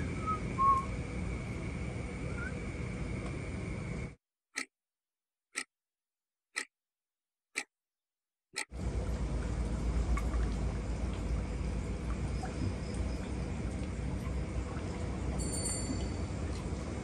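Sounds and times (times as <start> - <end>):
outdoor night ambience: 0.0 - 4.2, 8.6 - 17.0
clock ticking: 5.5 - 5.7, 6.5 - 6.7
deep rumble: 8.8 - 15.4.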